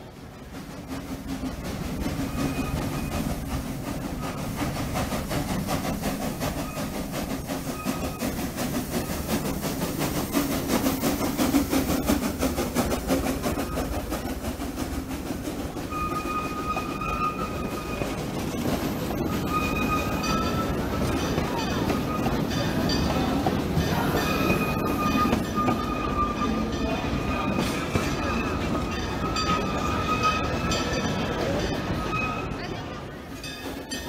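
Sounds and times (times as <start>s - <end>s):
train rumble and clatter: 0.0s - 34.0s
high wheel squeal: 2.0s - 4.7s, 5.8s - 11.4s, 13.3s - 14.4s, 15.7s - 32.7s.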